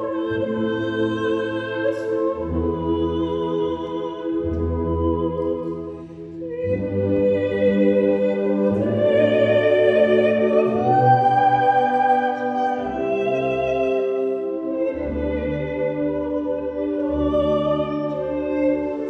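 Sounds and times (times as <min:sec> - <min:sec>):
male choir singing: 0:06.8 - 0:18.4.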